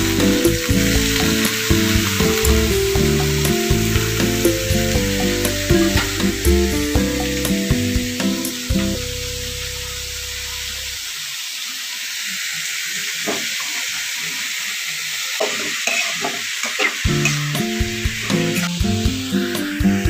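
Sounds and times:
leaves sizzling in a pan: 0.0 - 20.0
spoon scraping a pan: 15.4 - 17.4.

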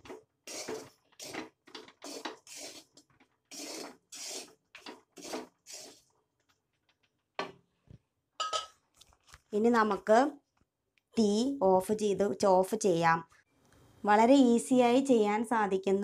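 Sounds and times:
spatula scraping a pan: 2.0 - 6.0.

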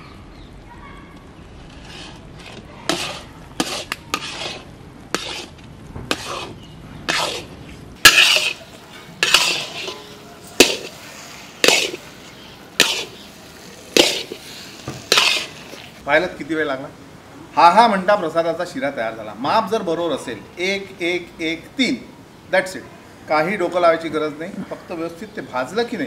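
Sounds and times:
metal spatula scraping a pan: 1.6 - 16.0.

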